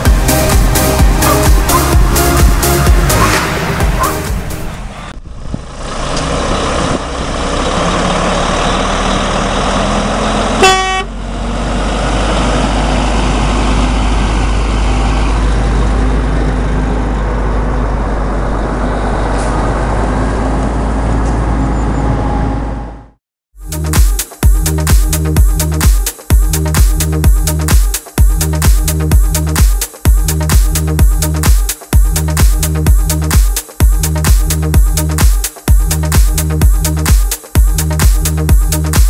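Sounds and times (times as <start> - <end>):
truck engine and tyre noise: 0.0 - 23.9, 24.5 - 39.0
truck horn toot: 10.4 - 11.2.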